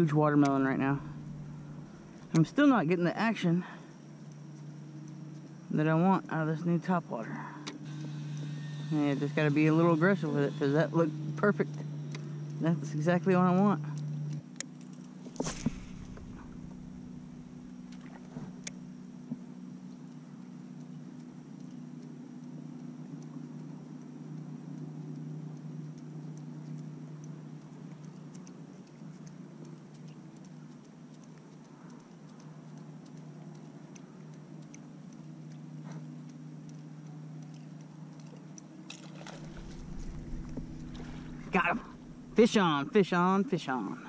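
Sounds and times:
low motor hum: 0:00.0 - 0:44.0
faint ticks: 0:03.6 - 0:06.3, 0:13.8 - 0:42.6.

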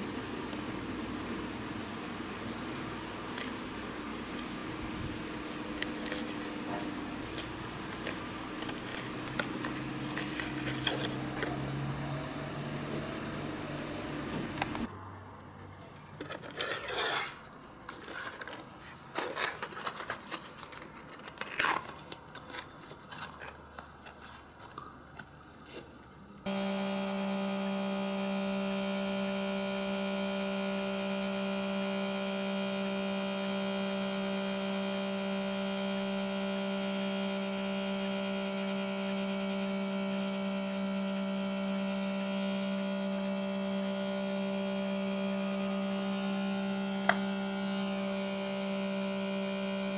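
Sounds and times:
motor hum of rotating stand: 0:02.2 - 0:14.9, 0:26.4 - 0:49.9.

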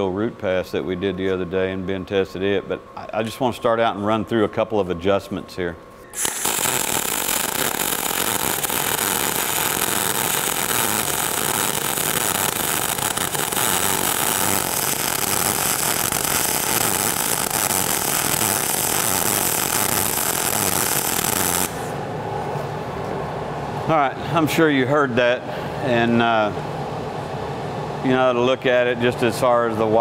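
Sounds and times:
welding arc crackling: 0:06.1 - 0:22.0.

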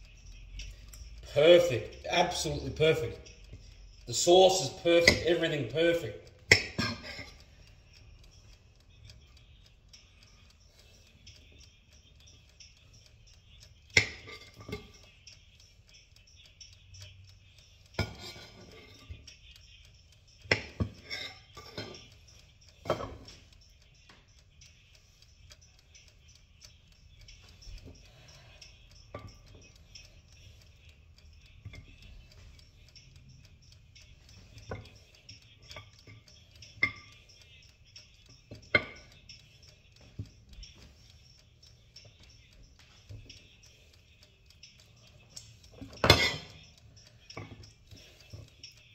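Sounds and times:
utensils and dishes clattering: 0:00.6 - 0:07.4, 0:13.9 - 0:15.2, 0:18.0 - 0:19.2, 0:20.4 - 0:22.2, 0:38.3 - 0:39.3, 0:45.3 - 0:48.5.

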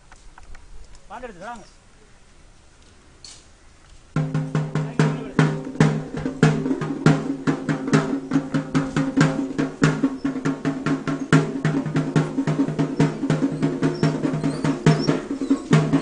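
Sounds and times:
fast pitched drumming: 0:04.2 - 0:16.0.

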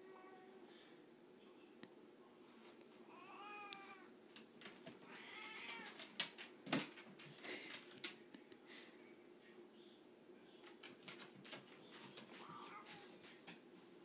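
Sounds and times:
cat meowing: 0:05.0 - 0:06.0.

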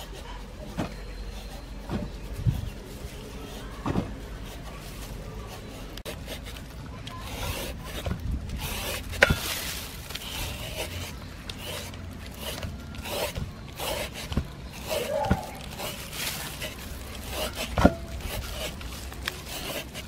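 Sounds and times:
peeler rasping papaya: 0:00.0 - 0:20.0.

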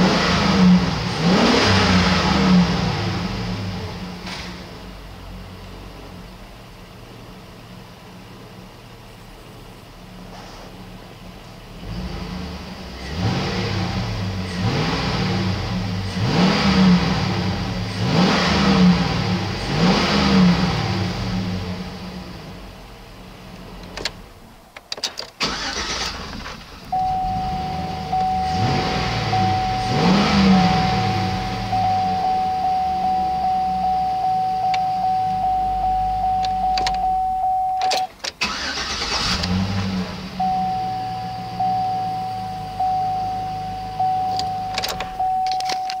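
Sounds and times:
car engine idling and revving: 0:00.0 - 0:46.0
dashboard warning chime: 0:26.9 - 0:38.2, 0:40.4 - 0:46.0.

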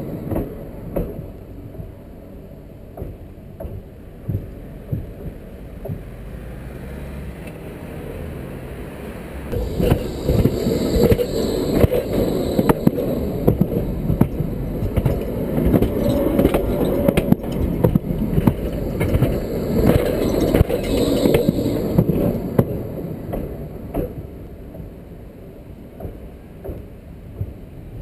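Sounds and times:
tram wheels rumbling on rails: 0:00.0 - 0:28.0
wheels clicking and clacking: 0:09.5 - 0:25.2.

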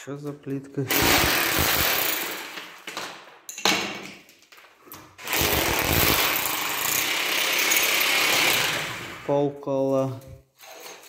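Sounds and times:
power tool running: 0:00.9 - 0:02.3, 0:05.2 - 0:09.2.

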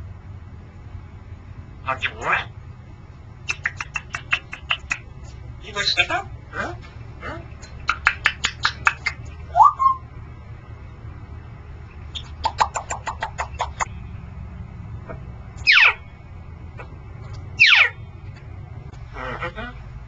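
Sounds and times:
parrot clicking: 0:03.4 - 0:05.2, 0:07.6 - 0:09.4, 0:12.2 - 0:13.9
parrot whistling: 0:07.9 - 0:10.0, 0:15.6 - 0:16.0, 0:17.6 - 0:18.0.

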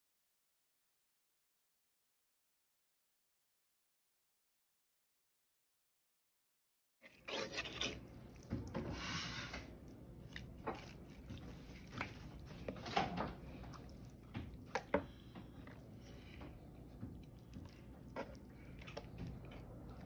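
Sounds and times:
knife slicing wet meat: 0:07.1 - 0:16.1.

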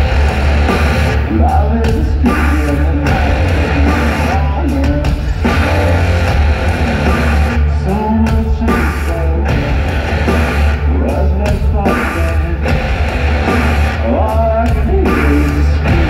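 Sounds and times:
drums: 0:00.0 - 0:16.0
electric guitar: 0:00.0 - 0:16.0
heavy bass: 0:00.0 - 0:16.0
person singing: 0:01.2 - 0:06.3, 0:07.6 - 0:09.8, 0:10.8 - 0:13.0, 0:13.9 - 0:16.0.

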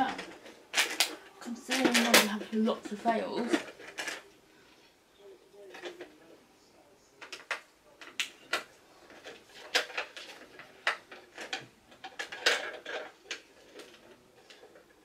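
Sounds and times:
objects clattering on table: 0:00.0 - 0:04.3, 0:07.2 - 0:14.9.

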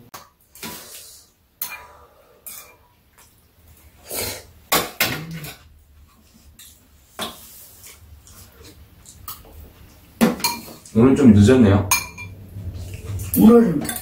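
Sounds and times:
spoon and chopsticks clinking bowls: 0:10.2 - 0:11.0, 0:11.9 - 0:12.4, 0:13.2 - 0:14.0.

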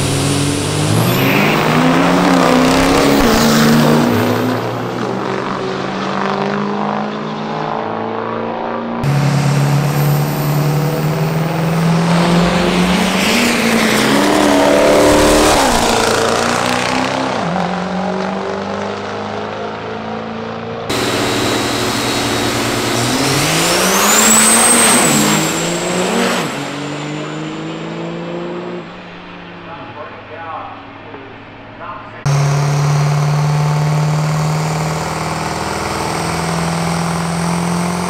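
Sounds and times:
high whine: 0:00.0 - 0:05.7, 0:09.0 - 0:16.9, 0:20.9 - 0:27.4, 0:29.5 - 0:38.0
diesel truck engine accelerating: 0:00.0 - 0:08.2, 0:09.0 - 0:31.2, 0:31.8 - 0:38.0.

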